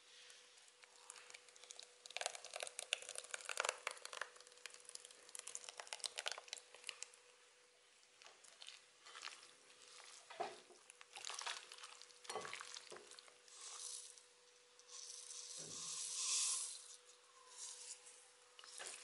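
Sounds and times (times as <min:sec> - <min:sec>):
hands squelching meat in marinade: 0:08.2 - 0:14.0
seeds pouring hiss: 0:13.5 - 0:14.2, 0:14.9 - 0:18.0.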